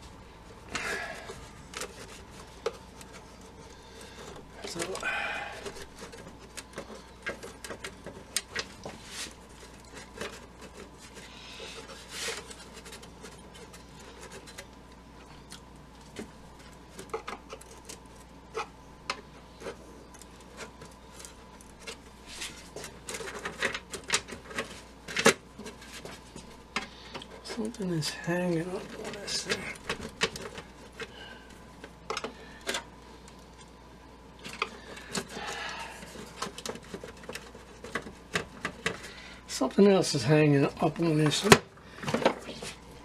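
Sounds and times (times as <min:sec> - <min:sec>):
hands handling radio cabinet: 0:34.4 - 0:39.1.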